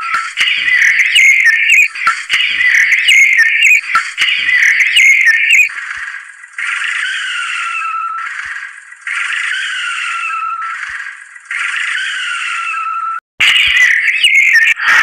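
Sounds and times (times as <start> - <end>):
chirpy synth music: 0.0 - 5.8, 13.4 - 15.0.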